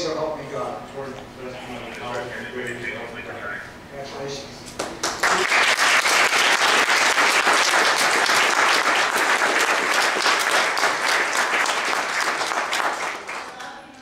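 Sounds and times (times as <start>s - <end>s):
audience applauding: 4.8s - 13.9s.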